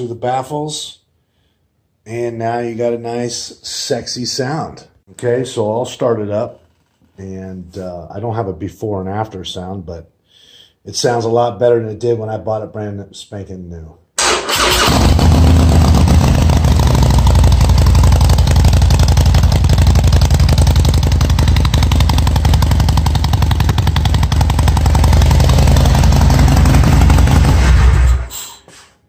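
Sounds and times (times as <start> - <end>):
motorcycle engine idling: 15.2 - 27.6.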